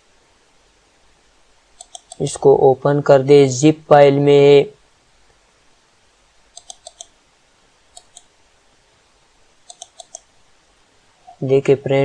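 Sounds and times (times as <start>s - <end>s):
computer mouse clicking: 1.8s - 2.3s, 6.5s - 7.2s, 7.9s - 8.3s, 9.6s - 10.3s.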